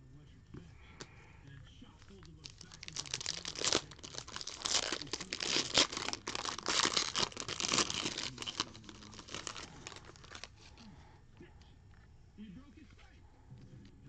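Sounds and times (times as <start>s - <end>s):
foil wrapper tearing and crinkling: 2.1s - 10.6s.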